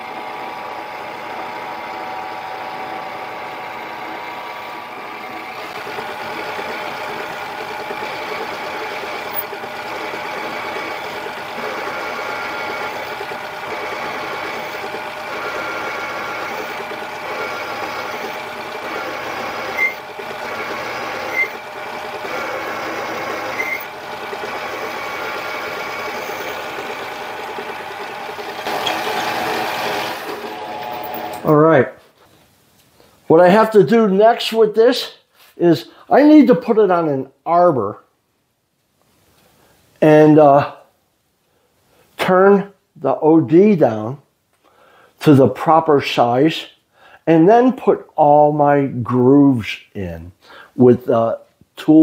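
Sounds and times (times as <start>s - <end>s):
lathe motor and gear whine: 0.0s - 31.6s.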